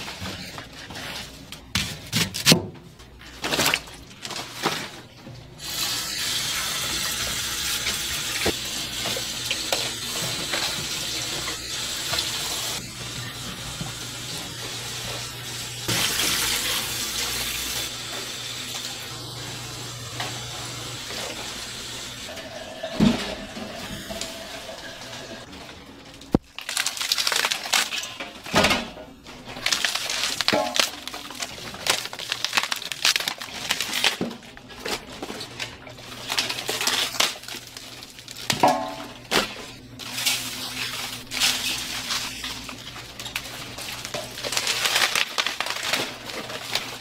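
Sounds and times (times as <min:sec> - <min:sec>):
metal pans and utensils clattering: 0:22.3 - 0:25.7, 0:27.9 - 0:32.0, 0:38.4 - 0:47.0.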